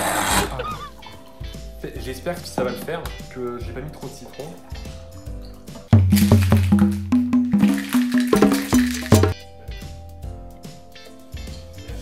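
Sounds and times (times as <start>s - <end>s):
music with percussive beat: 2.4s - 11.9s.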